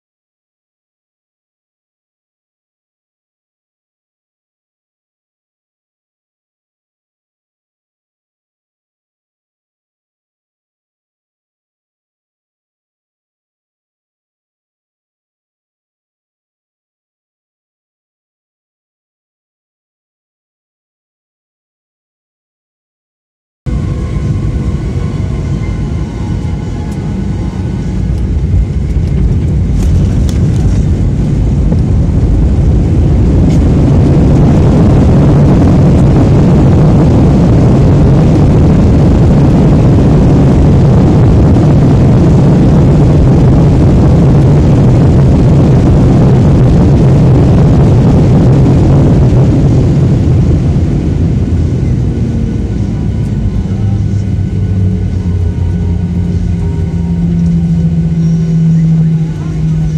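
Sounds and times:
jet engines roaring in cabin: 23.7s - 59.9s.

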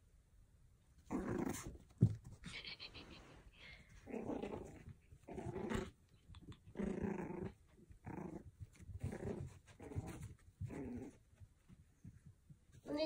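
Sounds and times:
puppy growling: 1.0s - 1.8s, 3.9s - 11.4s.

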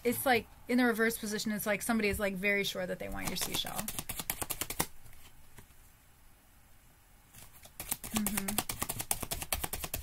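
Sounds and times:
cards being shuffled by hand: 3.1s - 5.8s, 7.3s - 10.0s
person humming: 8.1s - 8.7s.

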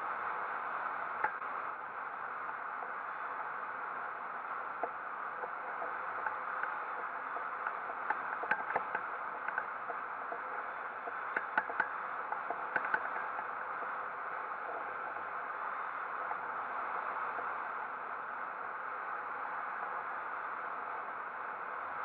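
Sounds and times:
small clicks and ticks: 4.8s - 15.4s.

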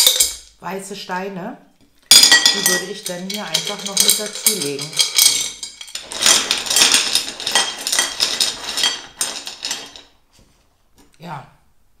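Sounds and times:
pebbles clattering into a dish: 2.1s - 10.1s.

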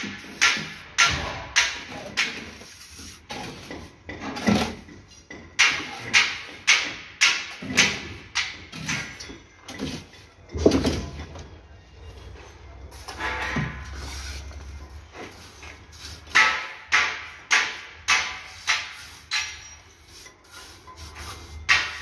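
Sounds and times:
trowel scraping mortar on brick: 1.8s - 4.9s, 18.4s - 22.0s.

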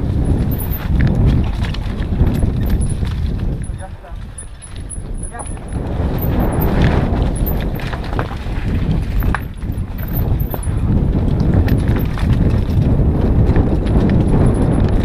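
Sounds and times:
bike rattling and knocking: 0.0s - 15.0s
steady low rumble: 0.0s - 15.0s.

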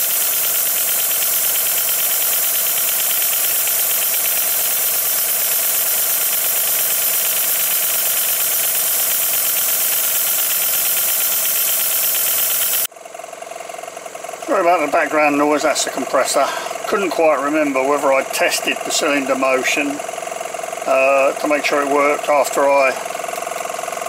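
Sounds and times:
hiss of exhausting air: 0.0s - 12.9s
model locomotive running on air: 0.0s - 12.9s
air compressor running: 0.0s - 24.0s.

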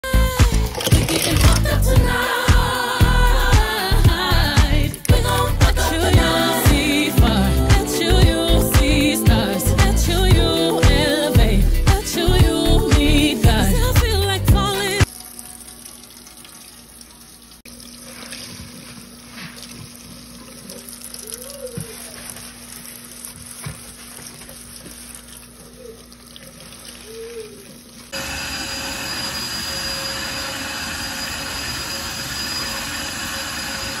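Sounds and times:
sponge scrubbing sink: 21.7s - 28.1s.

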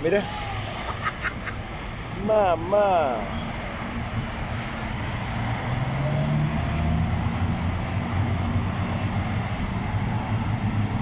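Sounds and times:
water rushing: 0.0s - 11.0s.

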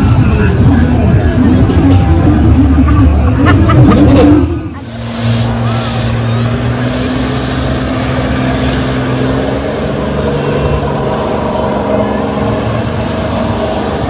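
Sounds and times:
short burst of hissing: 4.8s - 8.0s.

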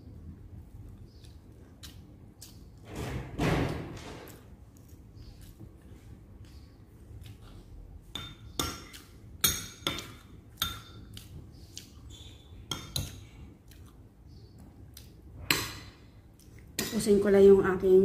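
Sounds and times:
cutlery clinking against a plate: 12.6s - 13.2s.

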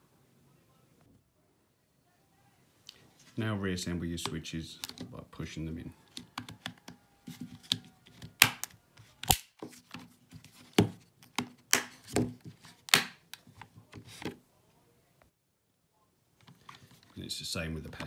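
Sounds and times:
plastic switch clips snapping: 8.4s - 9.5s.

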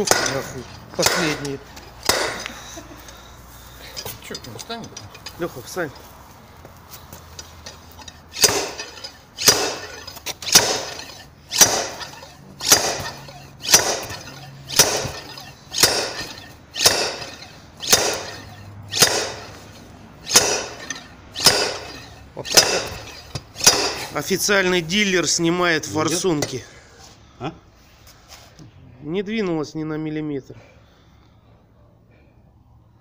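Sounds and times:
slide hammer metallic strikes: 0.0s - 3.2s, 7.2s - 24.8s.

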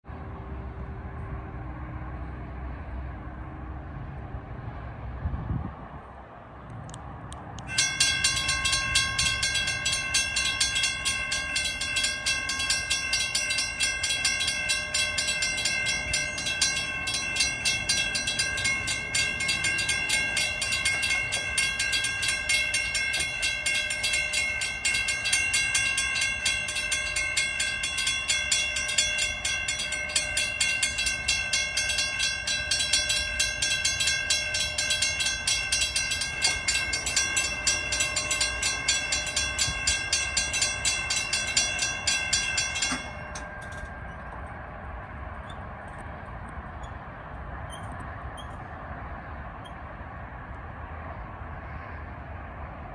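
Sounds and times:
railroad crossing bell ringing: 7.6s - 52.9s.

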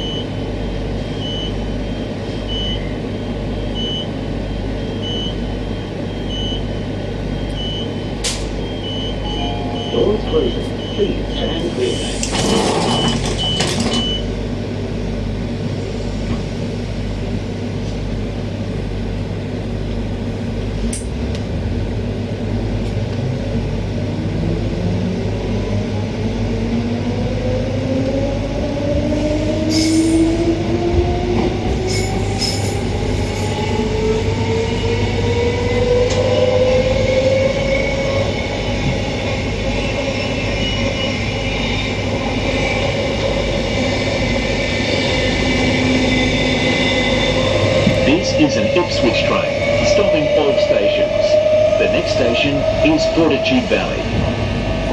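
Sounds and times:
door warning beeps: 0.0s - 14.3s
train doors closing: 5.0s - 14.4s, 28.6s - 54.9s
traction motor whine rising: 24.2s - 53.3s.

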